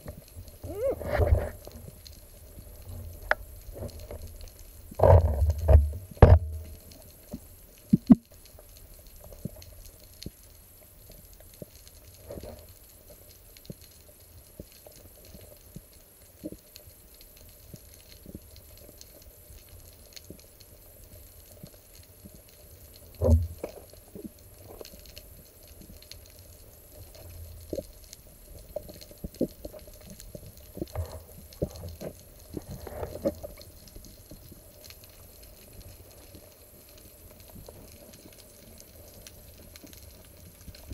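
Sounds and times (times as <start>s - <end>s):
low underwater rumble: 0.5s - 7.2s
underwater clicks and knocks: 4.9s - 6.9s, 7.9s - 8.3s, 23.2s - 23.9s, 30.8s - 33.7s.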